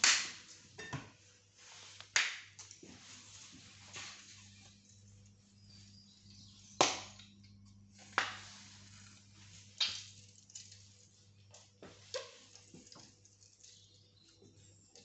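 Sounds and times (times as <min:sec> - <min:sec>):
kitchen knocks and clicks: 0:00.0 - 0:01.2
low steady hum: 0:00.0 - 0:15.0.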